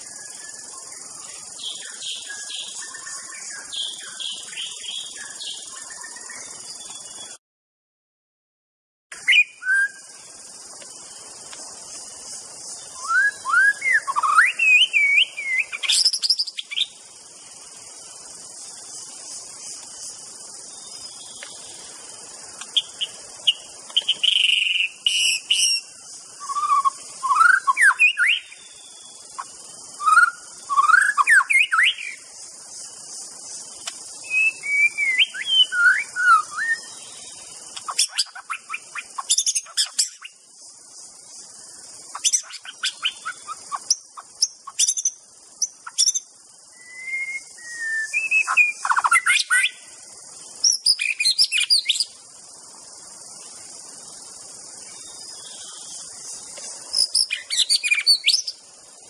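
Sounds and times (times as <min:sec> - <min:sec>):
steady high hiss: 0:00.0 - 0:07.4, 0:09.2 - 0:59.0
bird singing whistles: 0:09.2 - 0:10.1, 0:12.9 - 0:16.9, 0:22.8 - 0:28.6, 0:30.0 - 0:32.2, 0:34.2 - 0:37.1, 0:44.8 - 0:49.8, 0:57.0 - 0:58.6.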